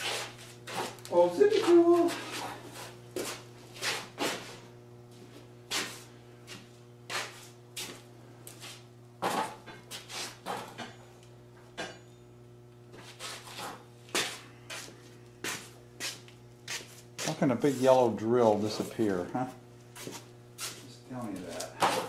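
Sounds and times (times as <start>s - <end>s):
steady low hum: 0.0s - 22.0s
footsteps: 13.0s - 22.0s.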